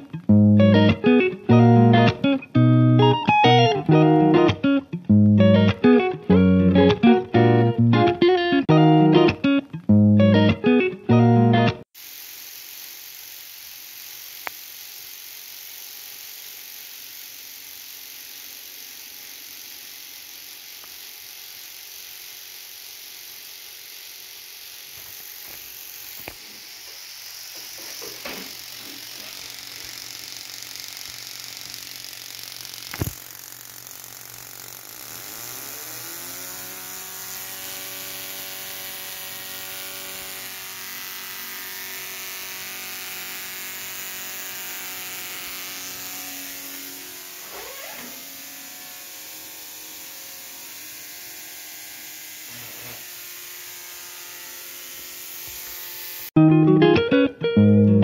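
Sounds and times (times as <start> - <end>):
rattling spark snaps: 12.2 - 22.4, 24.6 - 38.8.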